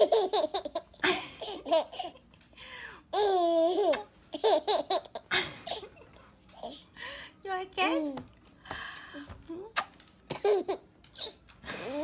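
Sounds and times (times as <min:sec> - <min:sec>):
baby giggling: 0:00.0 - 0:02.2, 0:03.1 - 0:06.1.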